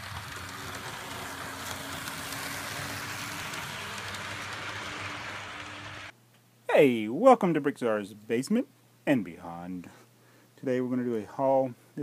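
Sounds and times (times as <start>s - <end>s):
model train motor whirring: 0.0s - 6.1s
faint hum: 0.0s - 12.0s.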